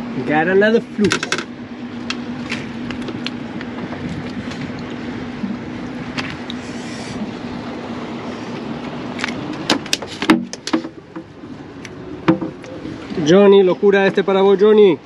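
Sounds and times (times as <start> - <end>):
boat motor humming: 0.0 - 15.0
water noise: 0.0 - 15.0
wind: 0.0 - 15.0
sharp knocks and clicks: 1.0 - 1.5, 9.2 - 11.3, 12.2 - 12.7.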